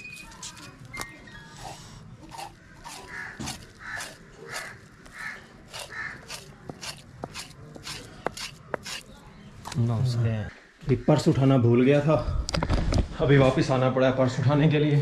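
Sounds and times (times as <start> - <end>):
bird calling: 0.0 - 9.1
knife scoring fish: 1.6 - 9.1.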